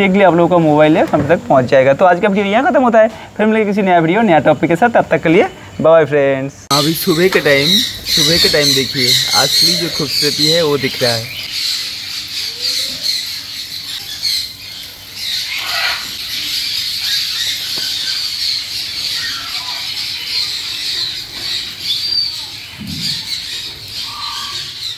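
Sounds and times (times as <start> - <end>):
parrots chattering and squawking: 6.7 - 24.9.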